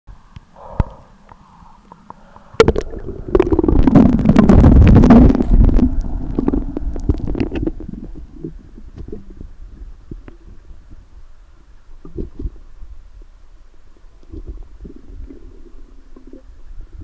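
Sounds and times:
small underwater clicks: 0.3s - 9.4s
underwater rumbling and bubbling: 0.6s - 17.0s.

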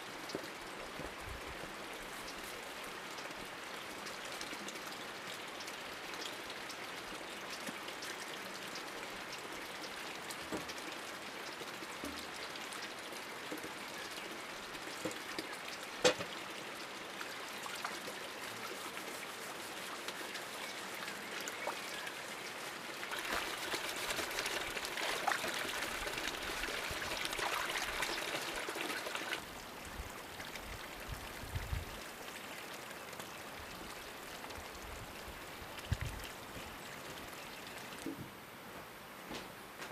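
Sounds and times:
water pouring into a bucket: 9.8s - 31.4s.

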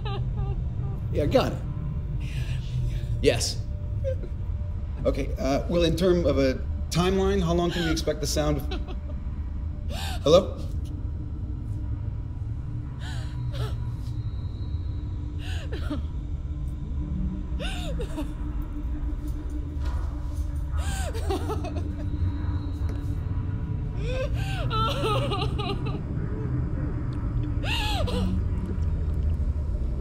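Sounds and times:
deep steady rumble: 0.0s - 30.0s
rising and falling cries: 20.7s - 23.2s, 23.8s - 28.9s.

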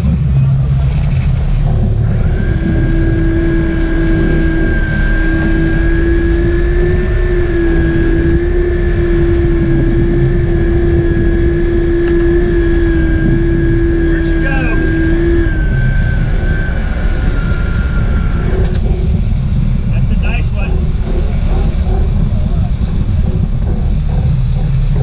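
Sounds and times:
boat engines rumbling: 0.0s - 25.0s
fishing reel drag screaming: 1.0s - 22.2s.

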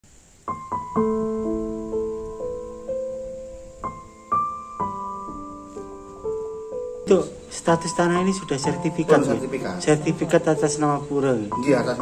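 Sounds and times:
piano notes and chords: 0.4s - 12.0s.

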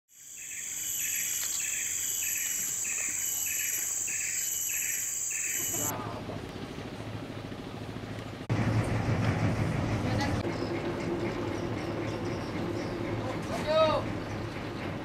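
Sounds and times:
insect pulsing chirp: 0.1s - 5.9s
insects buzzing shrilly: 0.1s - 5.9s
low hum: 5.6s - 15.0s.

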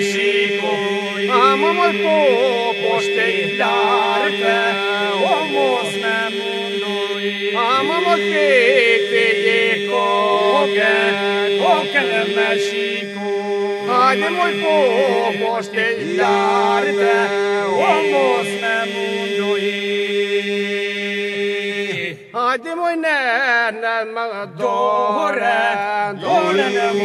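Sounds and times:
steady held drone: 0.0s - 21.4s
men singing folk song: 0.0s - 22.3s, 23.0s - 27.0s.

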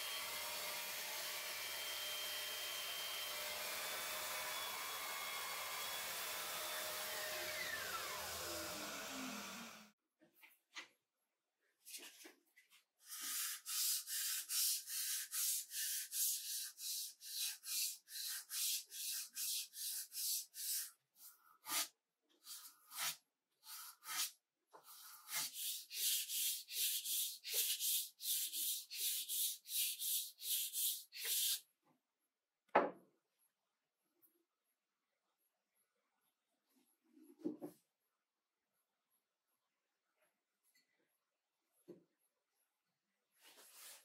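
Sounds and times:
sandpaper rubbing on wood: 13.2s - 20.9s, 25.1s - 31.6s
knock: 32.7s - 33.0s.

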